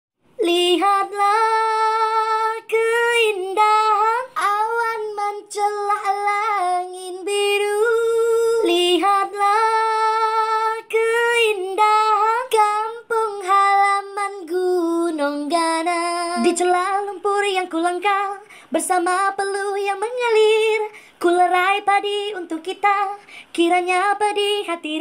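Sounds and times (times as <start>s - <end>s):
high solo voice singing: 16.3s - 16.8s.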